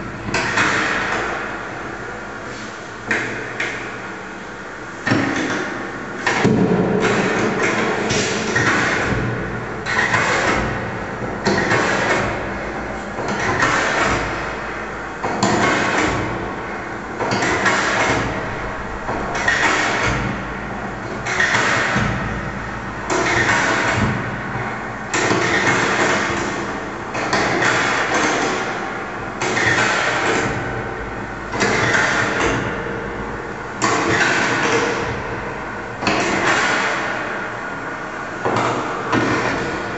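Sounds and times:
low steady hum: 16.4s - 23.1s
sharp percussive hits with noisy tail: 17.4s - 22.7s.

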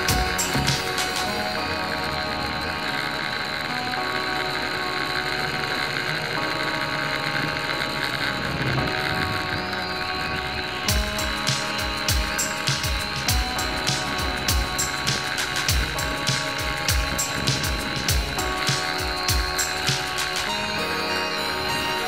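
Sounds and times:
drone propellers buzzing: 0.0s - 22.0s.

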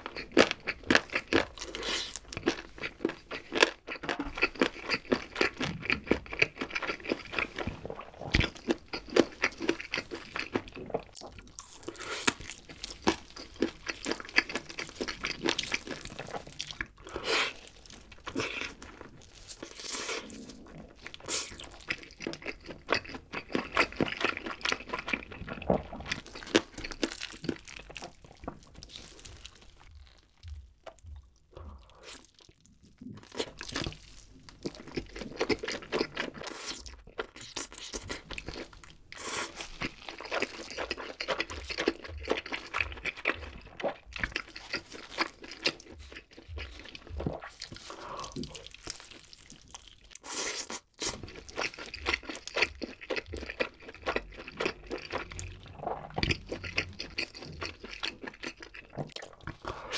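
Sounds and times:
crunchy chewing and biting: 0.0s - 59.9s.

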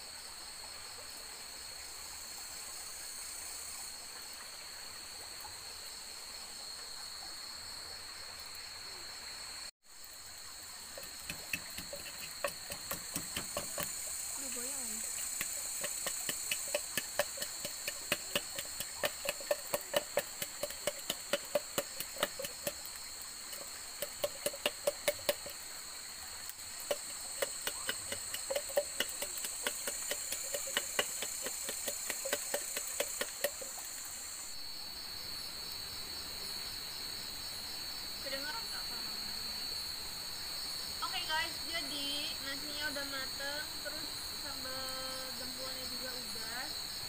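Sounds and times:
night insects trilling: 0.0s - 47.0s
wooden pestle pounding in mortar: 11.0s - 25.6s, 26.8s - 33.8s.

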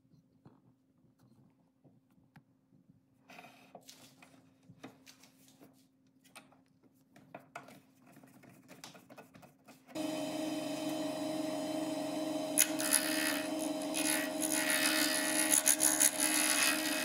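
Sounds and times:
lathe motor humming: 10.0s - 17.0s.

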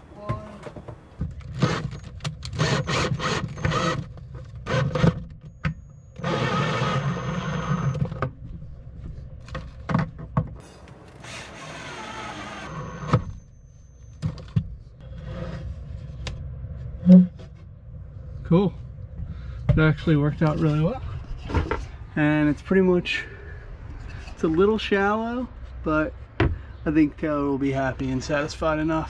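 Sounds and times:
cordless drill driving screws: 1.6s - 4.0s, 6.2s - 8.0s, 11.1s - 13.2s.

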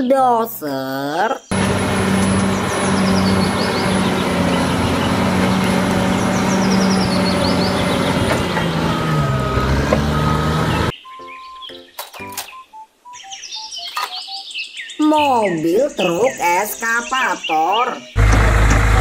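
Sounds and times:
bulldozer diesel engine under load: 1.5s - 10.9s, 18.2s - 19.0s.

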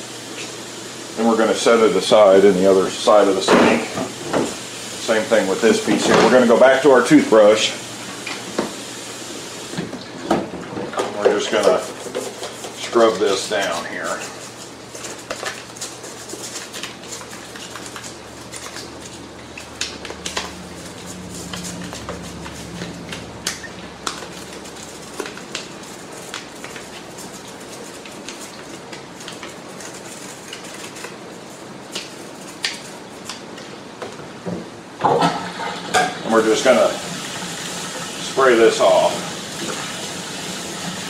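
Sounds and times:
toothbrush scrubbing plastic: 11.2s - 33.6s.

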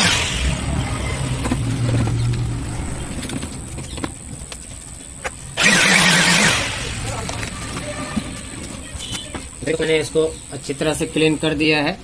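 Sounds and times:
blower motor hum: 0.0s - 8.8s.

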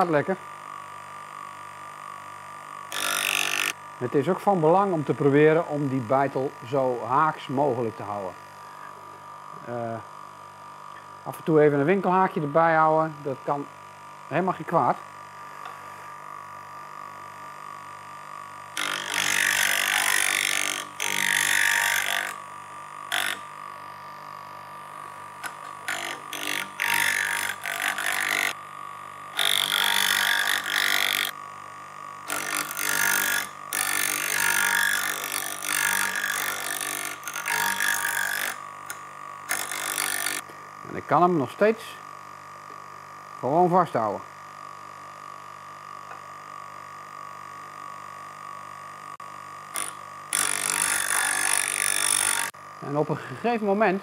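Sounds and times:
grinding machine humming: 2.6s - 43.6s
chisel grinding on wheel: 2.9s - 3.8s, 18.7s - 23.5s, 25.4s - 28.6s, 29.4s - 31.4s, 32.2s - 40.5s, 49.7s - 52.6s.

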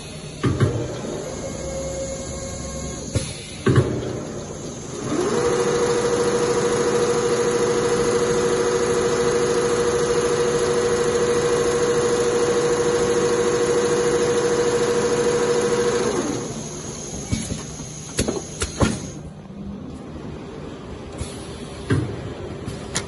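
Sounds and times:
sewing machine stitching: 4.9s - 17.3s.

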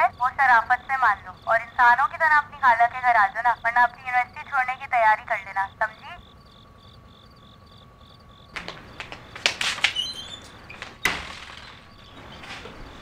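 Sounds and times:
crickets chirping: 0.0s - 13.0s
clicks and knocks: 8.6s - 13.0s
wooden door bang: 8.6s - 13.0s.

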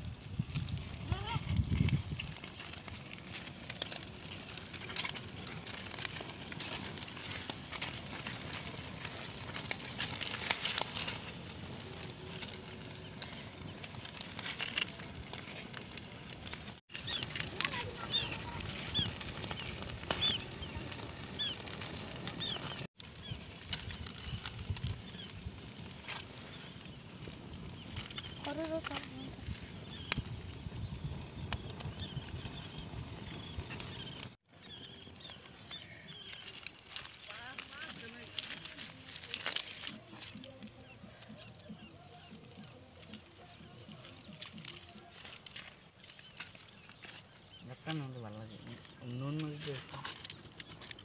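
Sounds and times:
fire crackling and popping: 0.0s - 51.0s
bird chirping: 16.9s - 21.7s, 22.3s - 25.3s.

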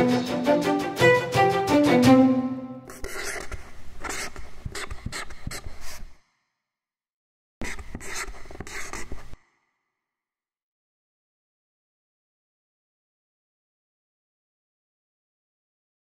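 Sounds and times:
marker pen scratching: 2.8s - 6.2s, 7.6s - 9.4s.

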